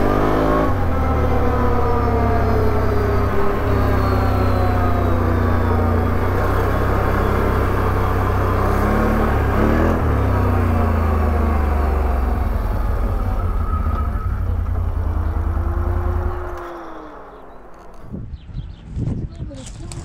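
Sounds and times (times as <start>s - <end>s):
utility vehicle engine running: 0.0s - 20.0s.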